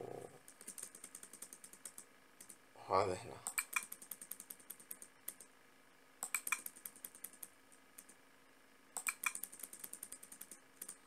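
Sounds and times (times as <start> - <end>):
keyboard typing: 0.4 - 2.6, 3.4 - 5.5, 6.2 - 8.2, 9.0 - 11.0.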